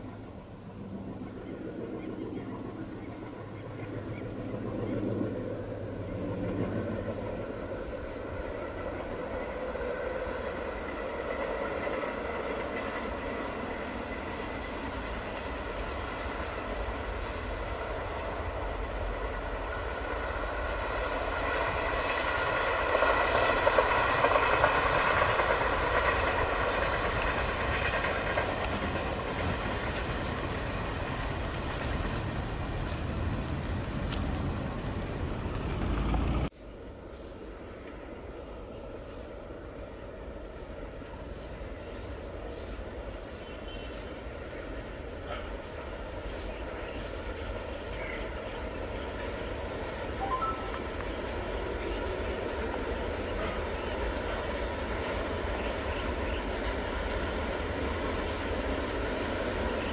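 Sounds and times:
train wheels rumbling on track: 0.0 - 36.6, 37.6 - 59.9
diesel locomotive engine drone: 0.0 - 59.9
wheels clattering on rail joints: 21.7 - 36.5.

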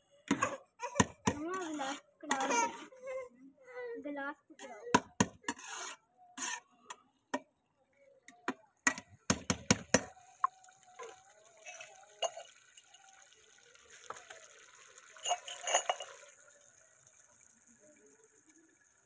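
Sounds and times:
metal spoon knocking on pot: 8.9 - 10.1
water bubbling in pot: 8.9 - 19.0.

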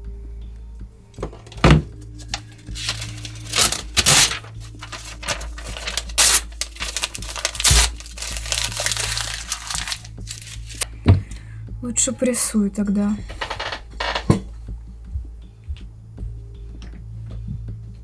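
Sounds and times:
low steady hum: 0.0 - 18.0
pages swishing: 2.2 - 10.8
paper rustling and crackling: 2.2 - 10.8.

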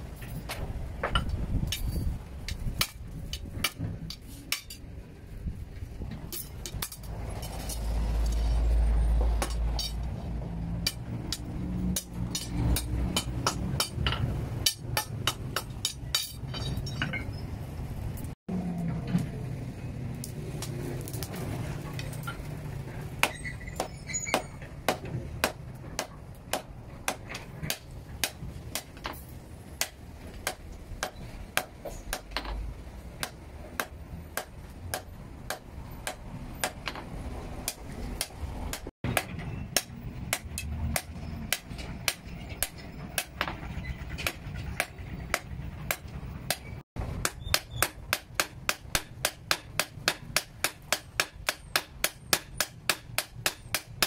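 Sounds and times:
hammers striking steel on anvil: 2.5 - 4.8, 9.4 - 10.1, 10.8 - 17.2, 23.2 - 32.6, 33.2 - 54.0.

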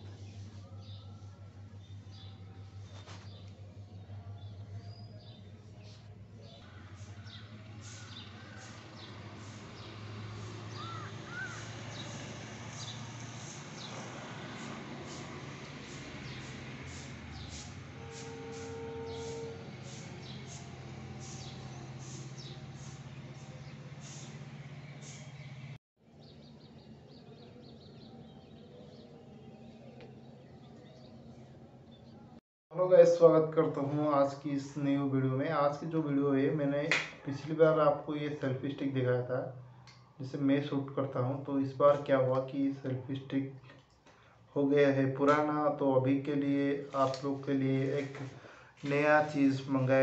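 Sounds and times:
steady low hum: 0.0 - 10.1
birds chirping: 0.0 - 18.1, 18.7 - 32.4
lower bird calls: 0.2 - 15.2.

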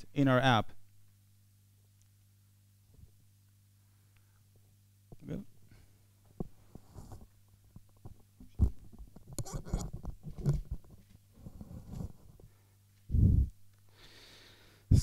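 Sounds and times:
steady low hum: 0.0 - 15.0
headset microphone handling noise: 6.3 - 13.5.

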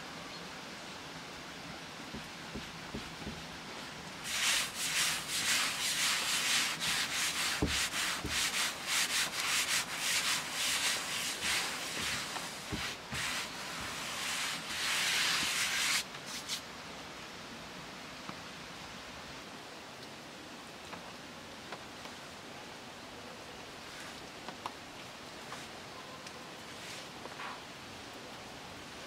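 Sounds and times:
palm rubbing pasta dough: 4.2 - 16.6.

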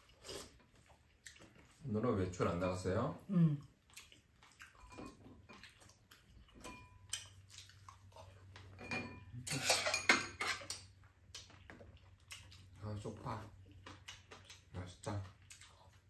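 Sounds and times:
utensils clinking against bowls: 4.8 - 5.2, 6.6 - 7.1, 8.7 - 10.9.

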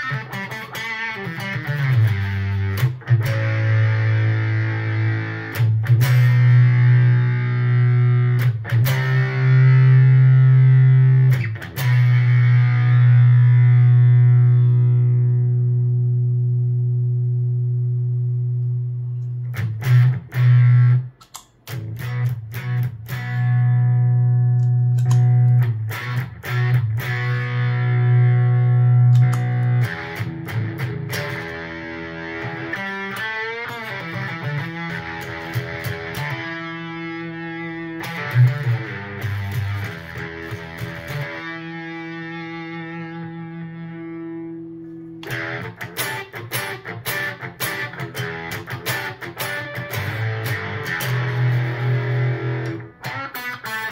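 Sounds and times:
fuzzed electric guitar: 0.0 - 53.9.

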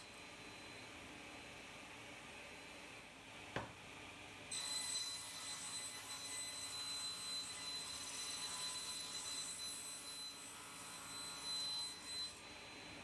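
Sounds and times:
table saw blade whining: 4.5 - 12.9.

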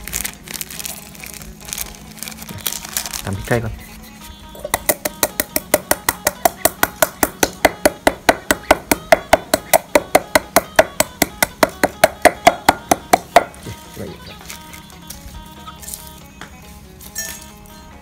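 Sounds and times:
pestle pounding in a mortar: 4.6 - 13.7.

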